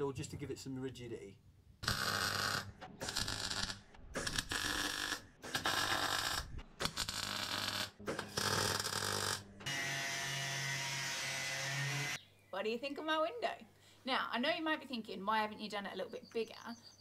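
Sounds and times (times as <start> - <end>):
power tools on sheet steel: 7.0 - 12.2.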